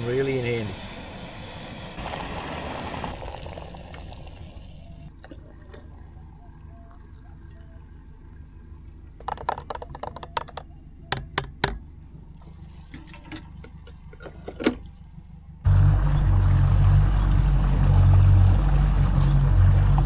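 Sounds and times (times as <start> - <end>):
boat engine drone: 0.0 - 20.0.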